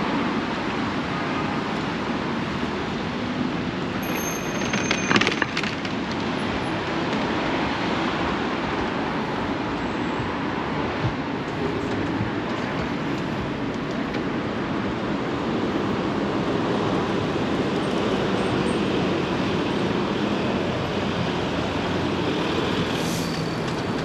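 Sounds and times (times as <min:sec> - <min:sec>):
train clattering: 0:04.0 - 0:07.6
train rumbling past: 0:15.5 - 0:24.0.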